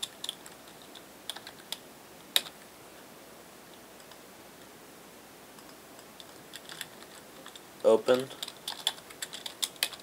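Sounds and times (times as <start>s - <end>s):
keyboard keys clicking: 0.0s - 1.8s, 5.6s - 7.6s, 8.2s - 10.0s
faint steady hiss: 0.0s - 10.0s.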